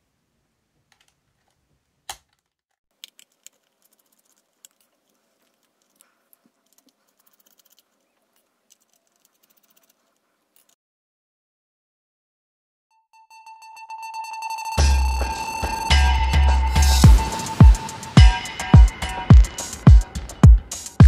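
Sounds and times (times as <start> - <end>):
screwdriver clicking on screws: 3.0 - 10.0.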